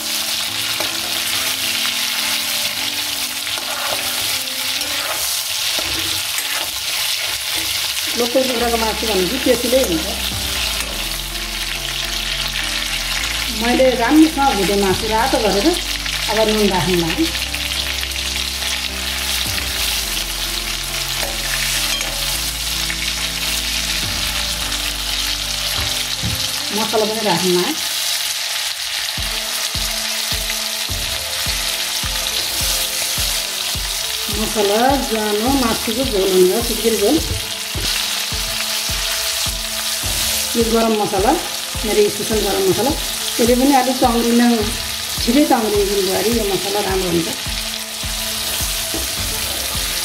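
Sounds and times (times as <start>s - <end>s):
metal ladle scraping a pan: 0.0s - 13.2s, 18.8s - 23.9s
chicken sizzling in pan: 0.0s - 50.0s
metal spoon scraping pan: 3.4s - 8.3s.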